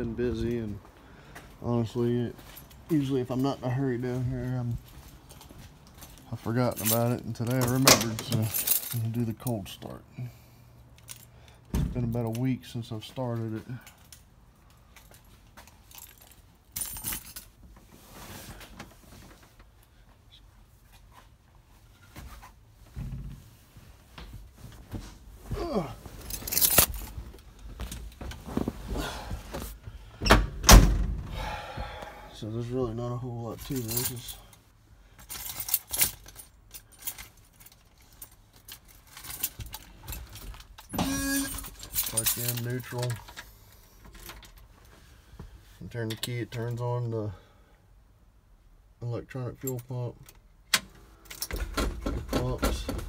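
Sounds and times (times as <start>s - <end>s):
keys jangling: 4.9s - 9.4s, 14.9s - 17.5s, 26.2s - 27.2s, 35.2s - 43.4s
handling rattles and clicks: 26.2s - 28.7s, 35.2s - 44.7s, 50.2s - 53.0s.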